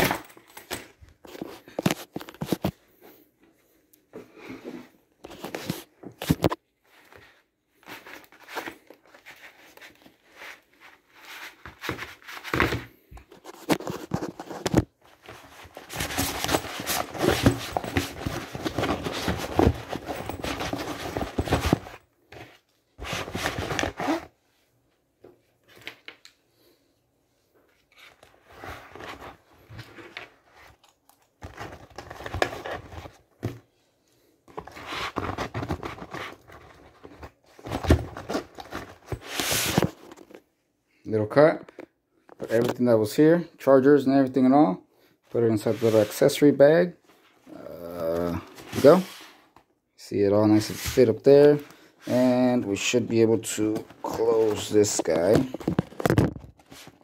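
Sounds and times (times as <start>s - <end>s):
bag rustling and crinkling: 13.4s - 22.0s
items knocking: 15.9s - 22.0s.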